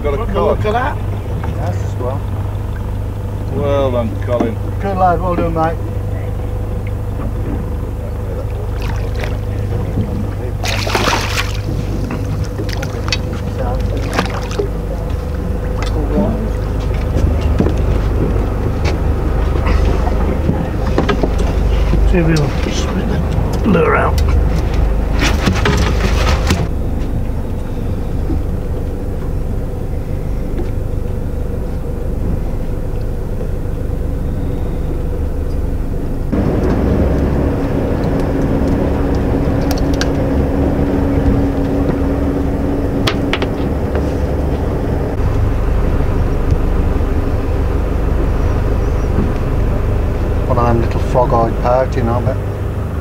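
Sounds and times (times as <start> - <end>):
boat engine humming: 0.0 - 53.0
water splashing: 6.7 - 21.9
loud splash: 8.7 - 9.4, 10.6 - 13.1, 14.0 - 14.7.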